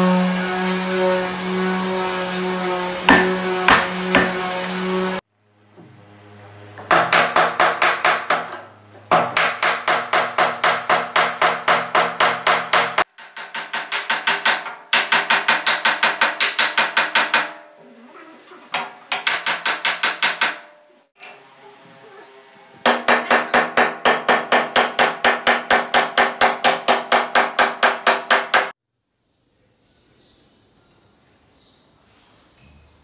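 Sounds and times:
hammer striking wood: 3.0s - 4.5s, 6.8s - 17.7s, 18.8s - 20.7s, 22.8s - 28.8s.

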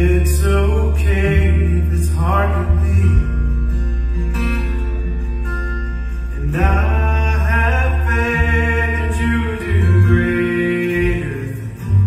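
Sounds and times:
electric bass: 0.0s - 12.0s
strummed acoustic guitars: 0.0s - 12.0s
person singing: 6.4s - 12.0s.

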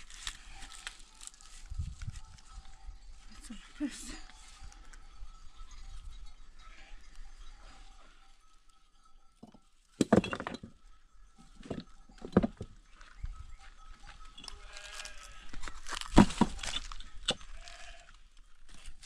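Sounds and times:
sheep bleating: 14.5s - 15.6s, 17.4s - 18.2s.

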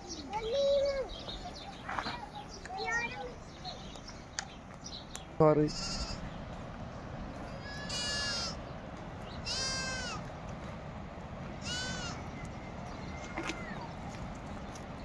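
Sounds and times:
goat bleating: 5.7s - 6.3s, 7.6s - 8.6s, 9.4s - 10.2s, 11.6s - 12.2s.

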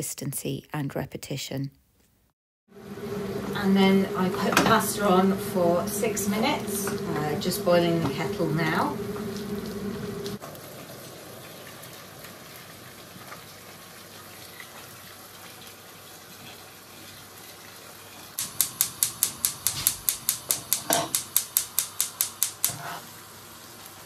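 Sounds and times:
gas igniter clicking: 18.4s - 22.8s.

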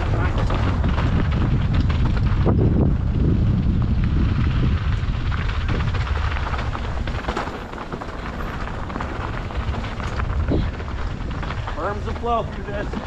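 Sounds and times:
mountain bike rattling on dirt trail: 0.0s - 13.0s
wind rushing over microphone: 0.0s - 13.0s
bike clicks and knocks: 4.3s - 13.0s.

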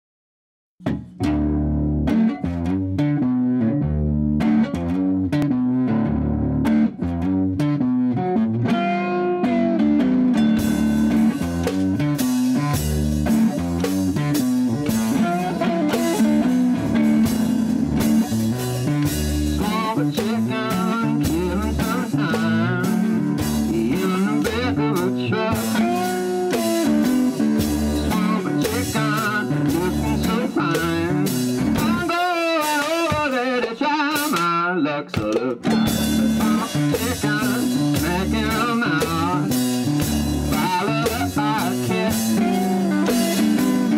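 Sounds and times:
guitar riff: 0.8s - 43.9s.

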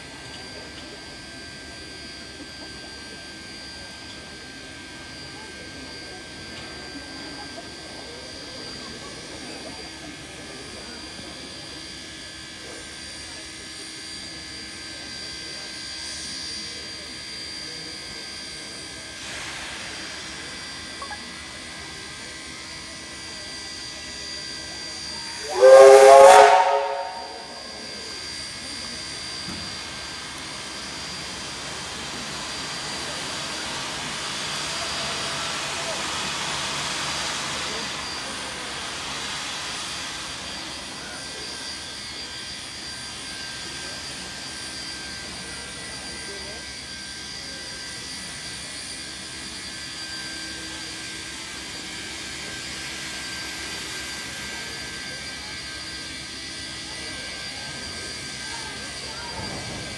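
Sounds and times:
steam hissing: 18.0s - 59.9s
steam locomotive whistle blast: 24.4s - 28.3s.

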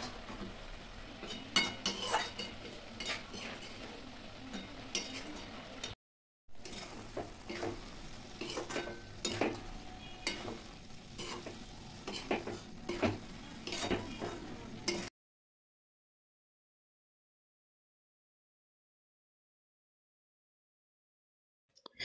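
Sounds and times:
metal spatula scraping a pan: 1.2s - 6.0s, 6.6s - 15.1s.

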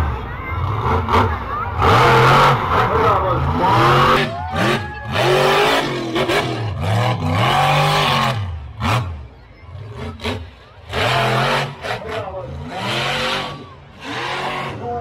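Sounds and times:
truck engine revving: 0.0s - 15.0s.

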